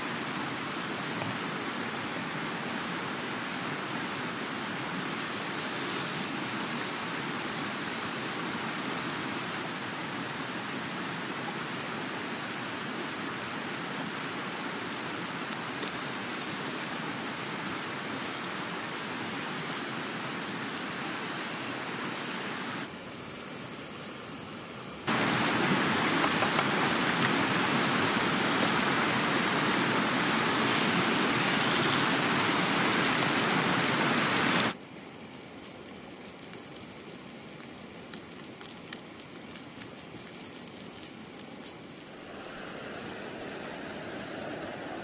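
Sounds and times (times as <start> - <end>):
stream rushing: 0.0 - 22.9, 25.1 - 34.8, 42.1 - 45.0
food sizzling in frying pan: 28.3 - 42.3.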